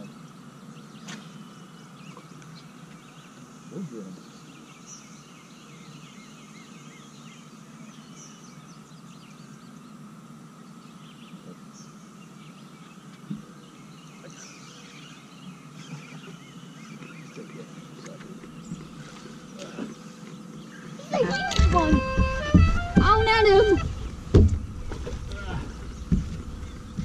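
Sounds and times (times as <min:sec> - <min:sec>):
birds chirping: 0:00.0 - 0:27.0
steady low hum: 0:00.0 - 0:27.0
sharp knock: 0:21.5 - 0:25.2.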